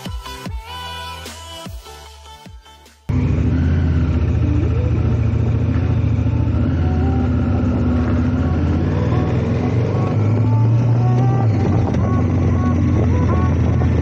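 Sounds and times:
background music with melody: 0.0 - 3.1, 4.4 - 14.0
motorcycle engine running: 3.1 - 14.0.

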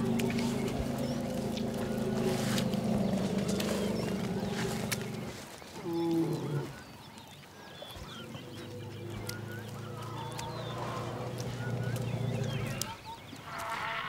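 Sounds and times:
elephant honking call: 13.4 - 14.0.

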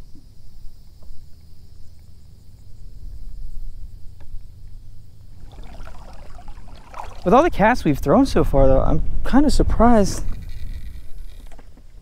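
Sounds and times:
insects buzzing: 0.0 - 8.2
wind on microphone: 5.4 - 12.0.

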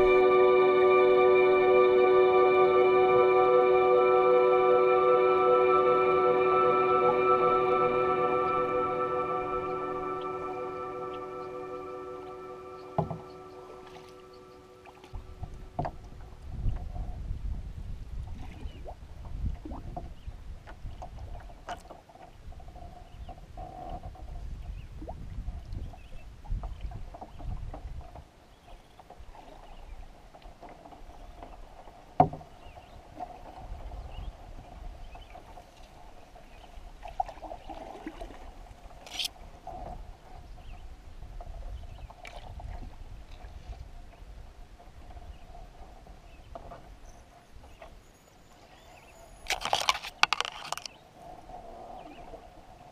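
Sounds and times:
paddle strokes: 8.6 - 17.2, 25.9 - 52.8
water lapping at canoe hull: 13.0 - 52.9
wind rumbling on microphone: 14.8 - 28.6, 29.2 - 47.8.

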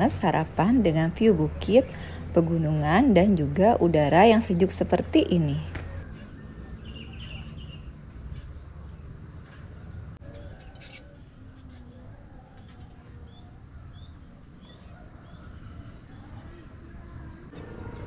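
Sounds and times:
insects droning: 0.0 - 18.0
bird chirps: 5.9 - 8.6, 9.5 - 16.5.

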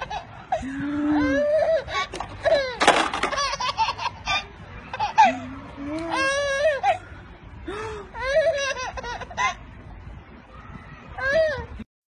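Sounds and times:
baby laughing: 0.0 - 0.6, 1.2 - 7.0, 8.2 - 9.6.

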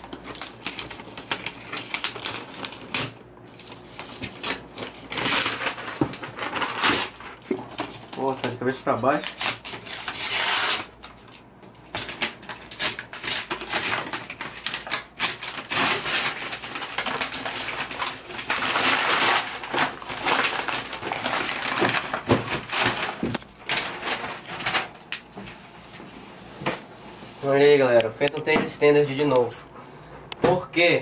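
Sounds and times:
paper and cardboard tearing: 0.0 - 11.0, 12.0 - 24.9.

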